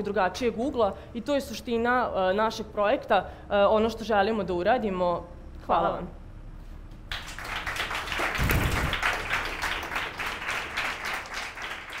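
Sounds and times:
audience applauding: 7.1 - 12.0.

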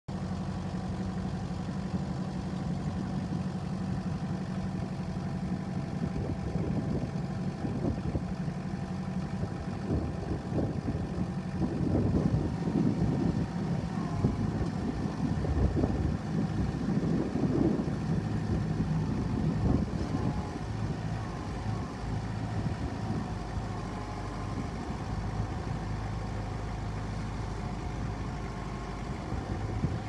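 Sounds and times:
diesel engine idling: 0.1 - 30.0
wind noise on microphone: 6.0 - 8.4, 9.3 - 26.0, 27.0 - 30.0.

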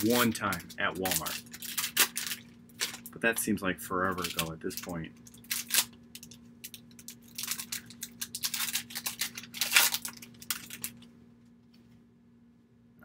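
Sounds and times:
trading cards rustling and flicking: 0.0 - 3.2, 4.0 - 11.1.

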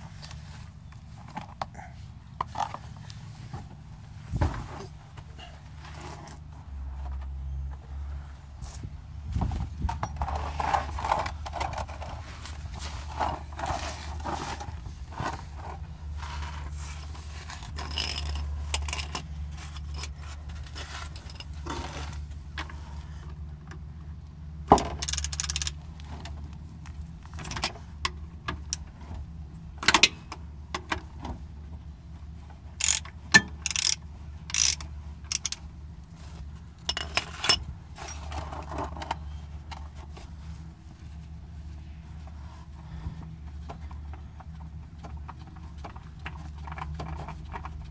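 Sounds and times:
steady low hum: 0.0 - 47.9
tools clinking on metal: 36.8 - 38.4.

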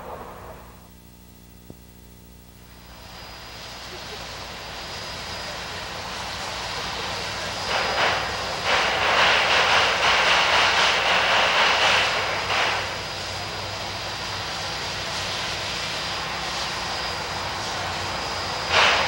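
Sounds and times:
steam locomotive hissing steam: 0.0 - 0.9, 2.7 - 19.0
low rumble: 0.0 - 1.0.

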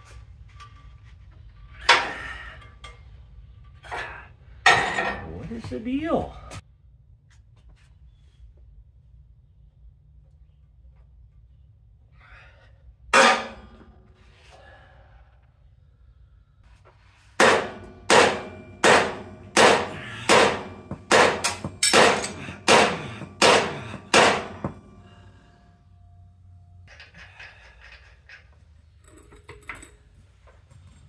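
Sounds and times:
hammer blows on steel: 17.4 - 25.2.

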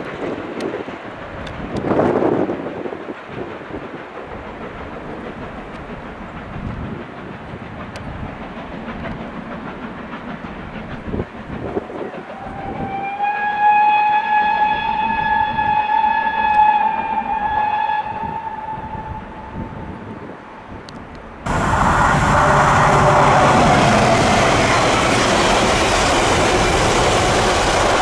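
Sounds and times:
train rumbling past: 0.0 - 28.0
steam whistle: 12.3 - 19.6, 21.5 - 25.6.

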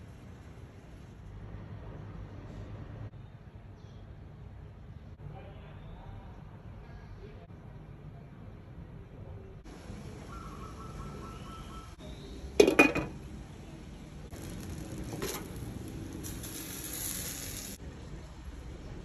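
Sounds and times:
glass lid clinking on metal: 12.6 - 13.2
steam hissing: 14.3 - 17.8.

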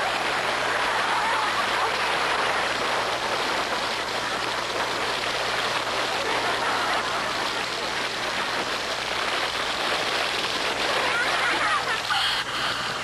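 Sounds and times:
water pouring down: 0.0 - 13.0.

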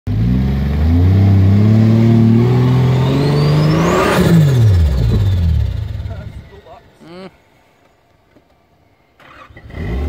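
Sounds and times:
engine working under load: 0.1 - 7.0.

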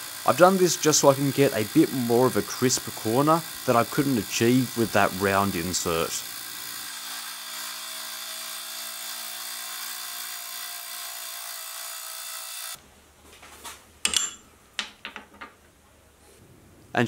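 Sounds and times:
milling machine cutting metal: 0.0 - 12.8.

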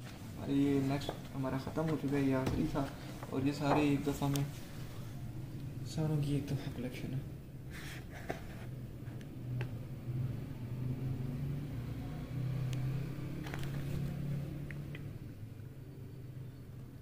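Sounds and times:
pages rustling: 13.4 - 14.1.

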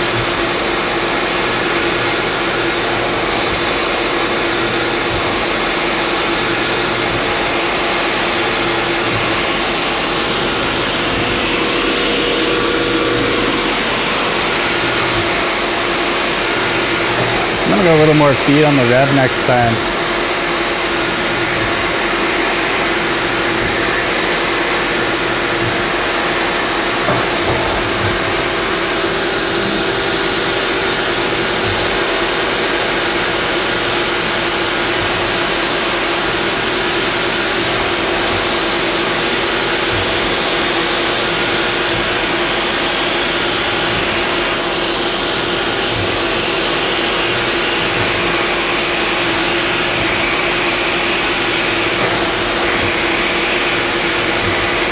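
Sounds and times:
spindle hum: 10.3 - 20.6.

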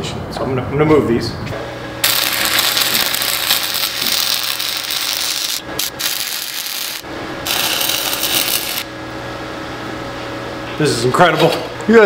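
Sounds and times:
welding arc crackling: 2.0 - 8.9.

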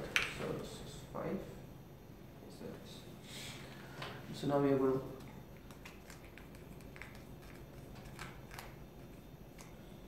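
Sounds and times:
wooden stick stirring in paper cup: 5.3 - 10.0.

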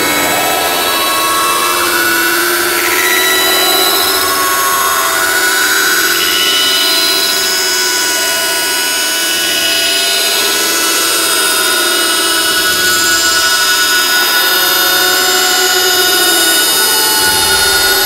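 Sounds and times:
thin tones drifting in pitch: 0.0 - 18.0
loud rushing noise: 16.9 - 18.0.

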